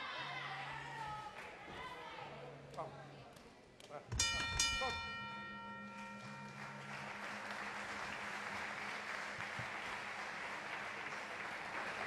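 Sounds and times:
ring bell ringing: 4.2s - 8.6s
crowd applauding: 5.9s - 12.0s.

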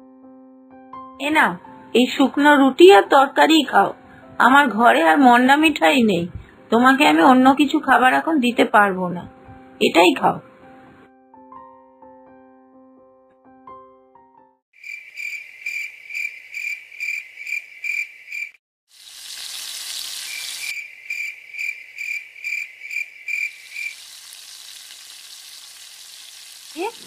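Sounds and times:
crickets chirping: 14.8s - 18.6s, 19.7s - 24.7s
food sizzling in a wok: 18.9s - 20.8s, 23.4s - 27.0s.

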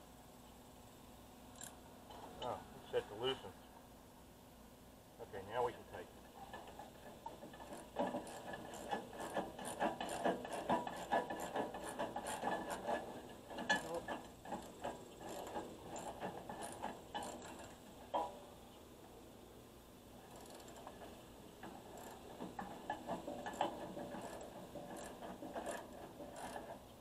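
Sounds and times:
ratchet wrench clicking: 1.5s - 1.8s, 20.3s - 20.9s, 21.9s - 22.2s, 25.0s - 25.8s, 26.4s - 26.6s.

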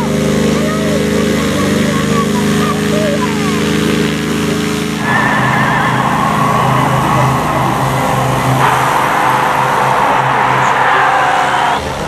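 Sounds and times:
propeller engine running: 0.0s - 12.0s
wavering high tone: 5.0s - 11.9s.

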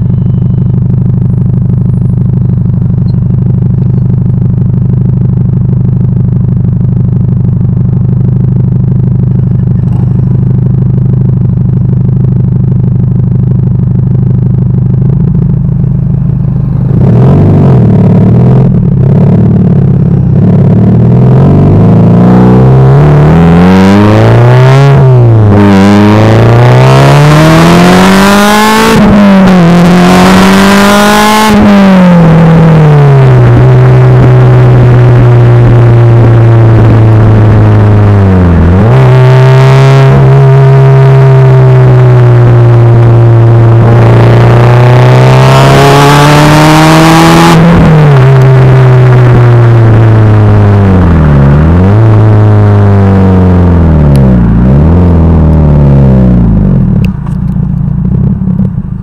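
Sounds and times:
car exhaust note: 0.0s - 59.0s.

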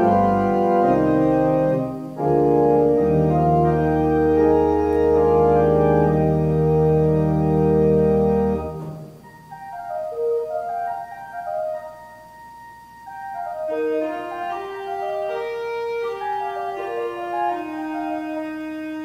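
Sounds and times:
deep pedal bass notes: 0.0s - 10.4s
church organ chords: 0.0s - 19.0s
higher single-line organ notes: 0.0s - 19.0s.

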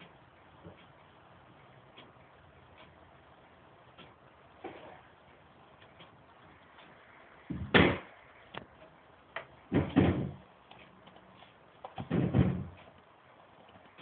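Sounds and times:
heavy dull thumps: 7.4s - 8.1s, 12.0s - 12.8s.

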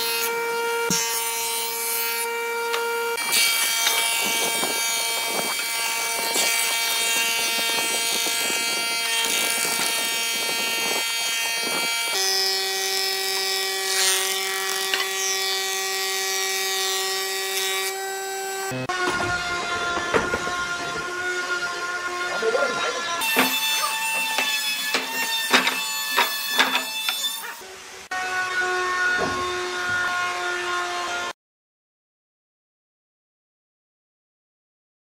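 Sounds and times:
planer knives shaving wood: 0.0s - 27.6s
woodworking planer whining: 0.0s - 31.3s.

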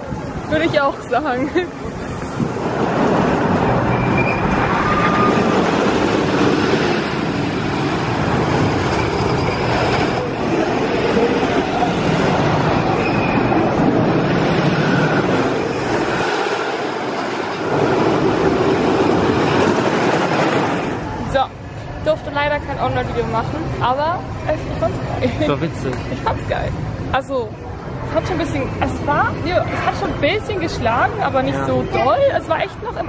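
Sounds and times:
roller coaster train on wooden track: 0.0s - 22.9s.

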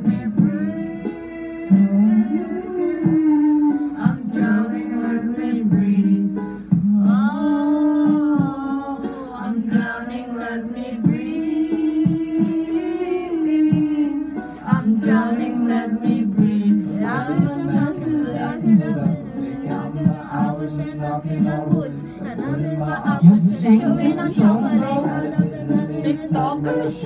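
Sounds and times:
backing music track: 0.0s - 27.0s
young man singing: 0.0s - 27.0s.

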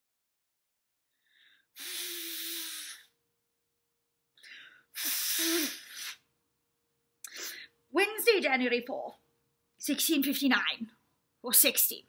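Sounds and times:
quick intake of breath: 1.3s - 3.1s, 4.5s - 6.2s
person blowing nose: 1.7s - 3.2s, 4.9s - 6.3s.

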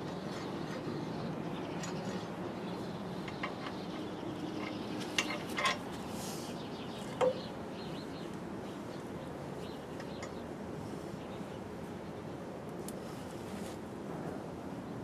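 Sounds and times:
low background hum: 0.0s - 15.0s
light metallic clinks: 1.7s - 5.9s.

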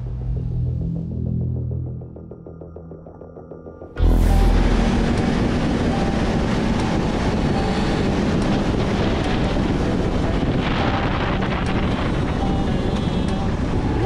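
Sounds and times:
wind rushing over microphone: 4.3s - 14.0s.

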